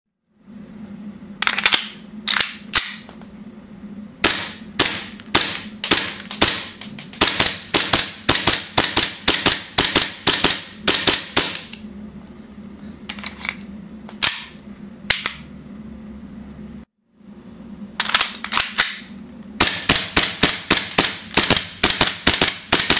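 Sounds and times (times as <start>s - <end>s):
airsoft pistol shots: 4.2s - 11.6s, 19.6s - 22.9s.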